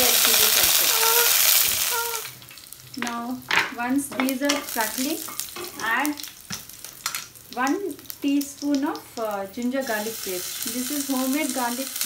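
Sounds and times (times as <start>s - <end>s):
spices frying in oil: 0.0s - 12.0s
squeaky pitch-bending tones: 0.9s - 2.3s.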